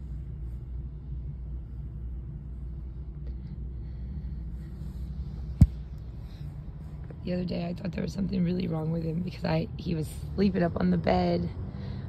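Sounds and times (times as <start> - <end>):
faint even hum: 0.0 - 9.3
steady low rumble: 0.0 - 12.0.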